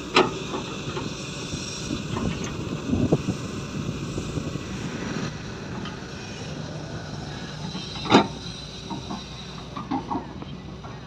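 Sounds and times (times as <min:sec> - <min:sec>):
excavator engine under load: 0:00.0 - 0:11.0.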